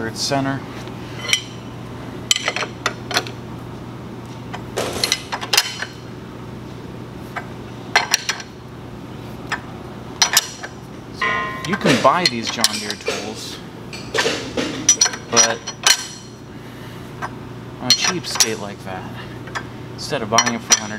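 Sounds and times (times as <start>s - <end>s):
steady low hum: 0.0s - 20.9s.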